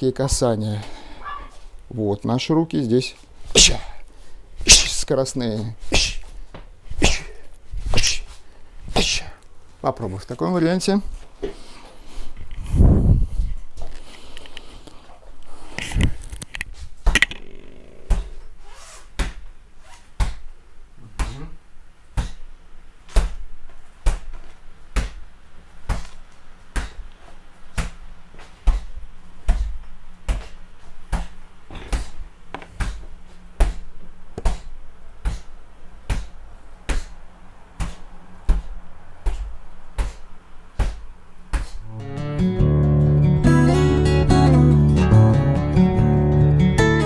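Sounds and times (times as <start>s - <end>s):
fists punching a heavy bag: 28.6s - 32.2s, 32.8s - 37.2s, 37.8s - 41.8s.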